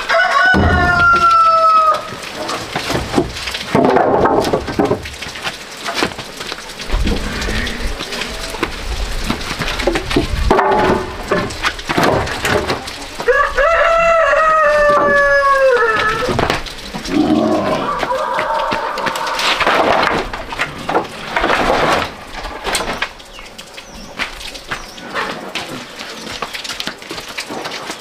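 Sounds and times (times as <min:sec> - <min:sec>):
rooster crowing: 0:00.0 - 0:02.1, 0:13.2 - 0:16.3, 0:17.7 - 0:19.7
knocks and clatter: 0:00.5 - 0:01.4, 0:02.1 - 0:13.3, 0:14.8 - 0:23.5.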